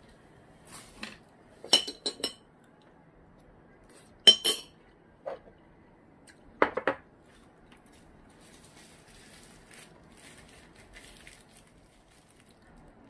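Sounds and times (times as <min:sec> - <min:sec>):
metal kitchenware clinking: 0:01.7 - 0:02.4, 0:04.3 - 0:04.8.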